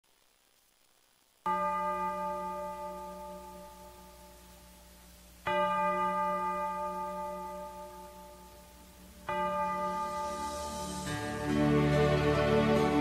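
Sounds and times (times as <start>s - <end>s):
bell-like chime ringing: 5.5s - 13.0s.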